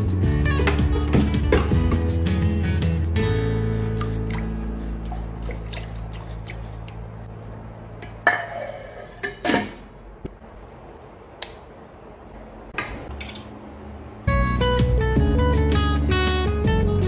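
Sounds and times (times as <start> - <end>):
metal lid clattering on pot: 8.0 - 9.8.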